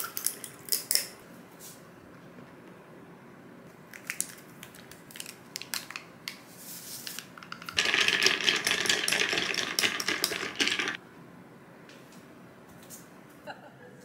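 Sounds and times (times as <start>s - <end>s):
spoon stirring ice in glass: 7.8s - 11.0s.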